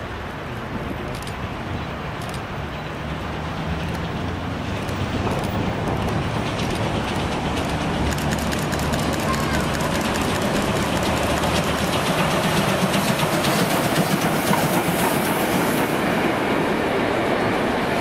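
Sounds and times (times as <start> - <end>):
steam locomotive and wheels rumble: 0.0 - 18.0
sharp clicks: 7.6 - 11.6.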